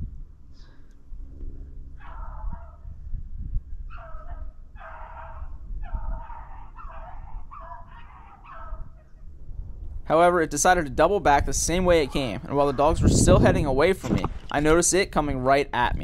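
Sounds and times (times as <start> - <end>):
dogs baying: 2.0 - 2.9, 3.9 - 9.2.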